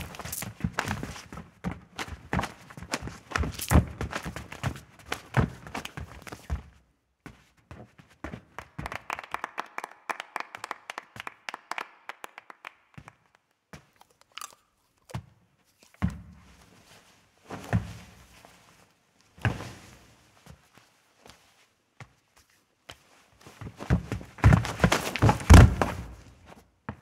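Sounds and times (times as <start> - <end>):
feet scuffing and tapping: 0.0 - 8.6, 15.1 - 27.0.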